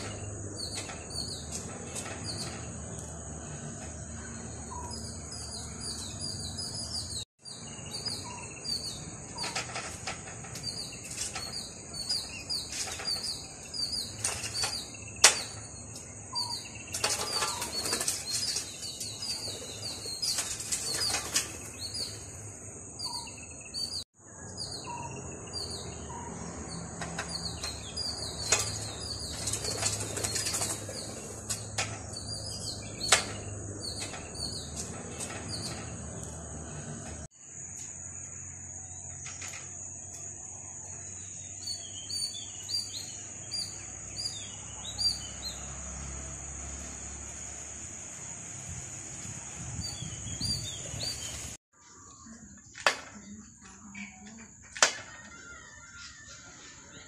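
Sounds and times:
bird chirps: 0:00.0 - 0:36.8, 0:40.1 - 0:45.7
wings flapping: 0:29.2 - 0:31.6.

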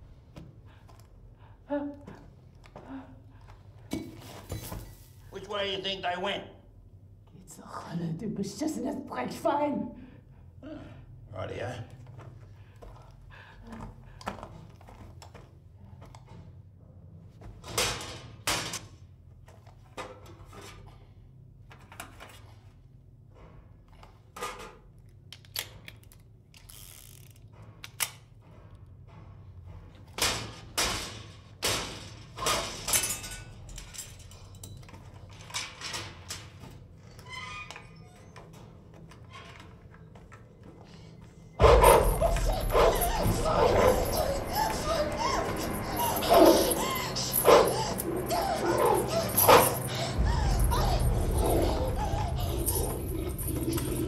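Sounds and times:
low steady drone: 0:41.5 - 0:54.0.

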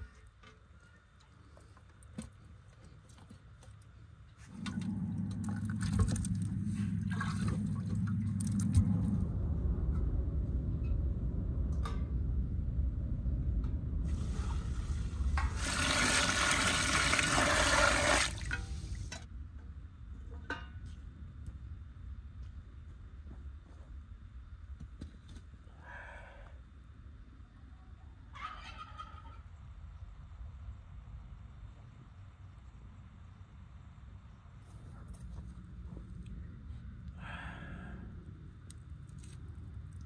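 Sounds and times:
water pouring into a steel pot: 0:15.4 - 0:18.9.

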